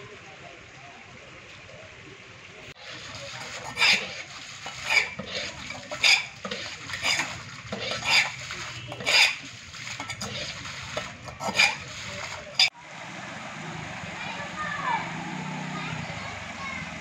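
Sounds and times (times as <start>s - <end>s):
water splashing: 2.4s - 17.0s
vessels scraping wet floor: 2.8s - 12.8s.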